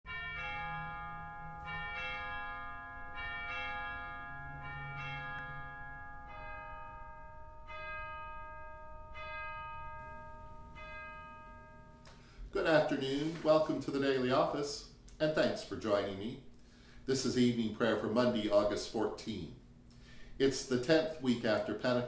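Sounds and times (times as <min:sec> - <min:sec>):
bells ringing: 0:00.1 - 0:14.0.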